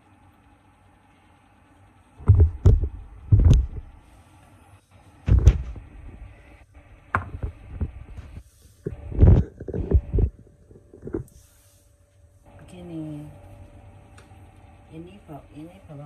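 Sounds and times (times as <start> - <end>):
dull handling thumps and knocks: 2.2 - 3.9, 5.3 - 6.2.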